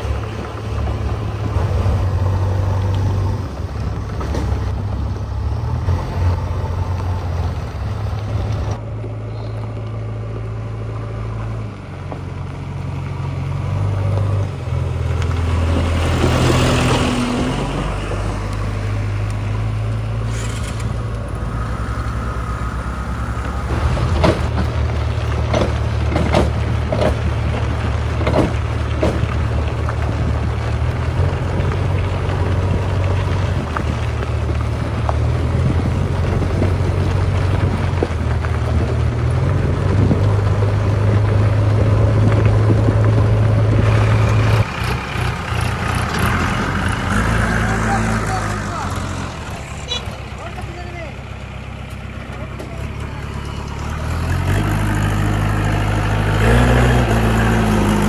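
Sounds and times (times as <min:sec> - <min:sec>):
tyre and wind noise: 0:00.0 - 0:50.8
diesel engine running: 0:00.0 - 0:58.0
sharp knocks and rattles: 0:23.7 - 0:32.4.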